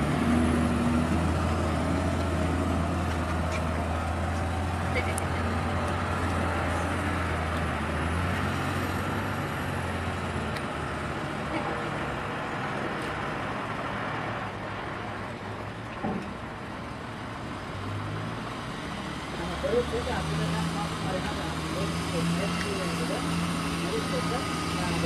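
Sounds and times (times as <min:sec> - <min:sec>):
diesel truck engine rumble: 0:00.0 - 0:25.0.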